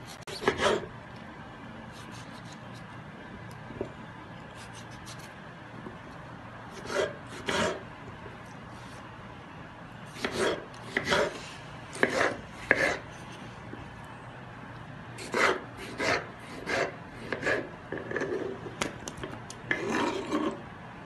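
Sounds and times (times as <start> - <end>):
knife scraping board: 0.0 - 0.9, 6.7 - 7.8, 10.1 - 13.5, 15.2 - 18.7, 19.7 - 20.6
knife slicing on wooden board: 10.2 - 11.4, 12.0 - 13.0.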